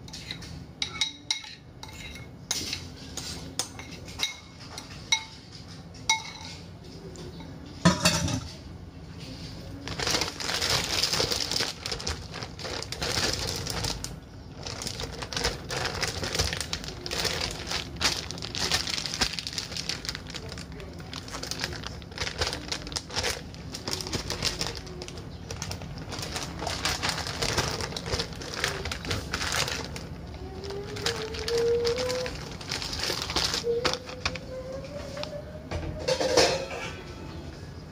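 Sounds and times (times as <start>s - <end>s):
plastic bag crinkling: 9.5s - 35.4s.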